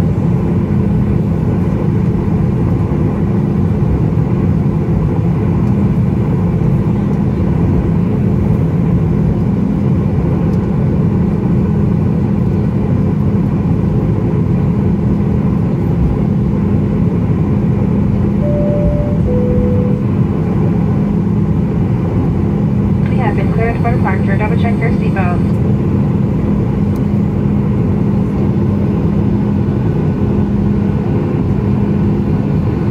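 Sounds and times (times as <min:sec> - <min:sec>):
aircraft engine rumble and hum: 0:00.0 - 0:32.9
two-tone cabin chime: 0:18.4 - 0:20.5.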